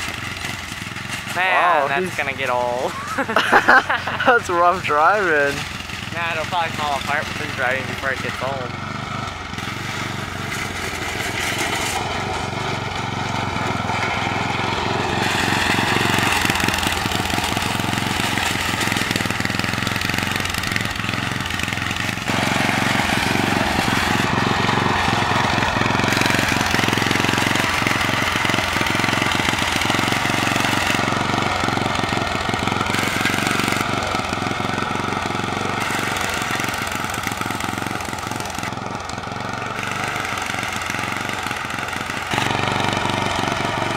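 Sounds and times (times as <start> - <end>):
riding lawn mower engine: 0.0 - 43.9.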